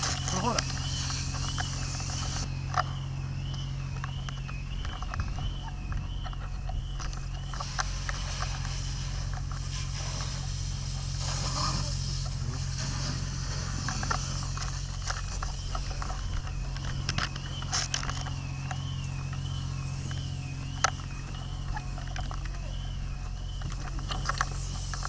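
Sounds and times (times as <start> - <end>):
fire hose spray hissing: 0.0 - 2.5, 7.4 - 16.0, 24.0 - 25.0
wavering high siren tone: 0.0 - 7.8, 13.8 - 25.0
low engine drone: 0.0 - 25.0.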